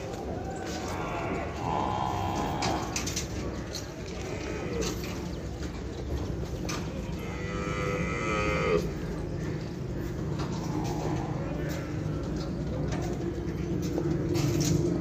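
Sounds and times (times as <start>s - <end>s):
buffalo mooing: 7.1s - 9.0s.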